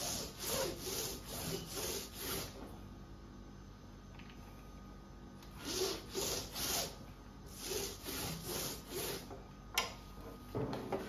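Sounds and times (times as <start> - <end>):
roller rubbing over wax sheet: 0.0 - 2.6, 5.6 - 9.3.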